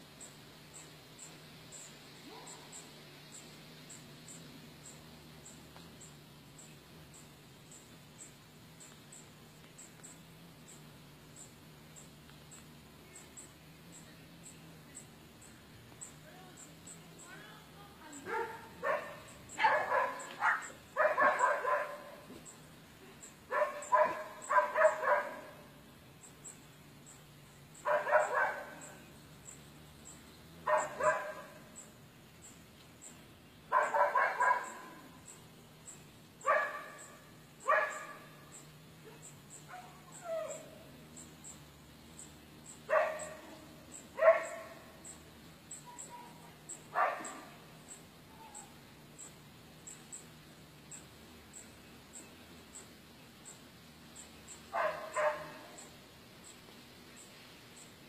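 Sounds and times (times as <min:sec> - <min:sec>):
animal barking calls: 0:18.1 - 0:22.3, 0:23.4 - 0:25.8, 0:27.8 - 0:29.7, 0:30.5 - 0:31.9, 0:33.7 - 0:35.3, 0:36.4 - 0:48.9, 0:54.5 - 0:56.0.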